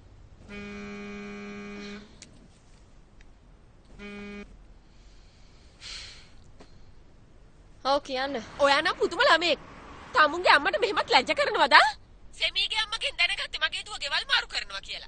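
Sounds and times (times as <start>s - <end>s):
mobile phone vibrating: 0.4s - 2.2s, 3.9s - 4.5s
soft rustle: 1.8s - 5.8s.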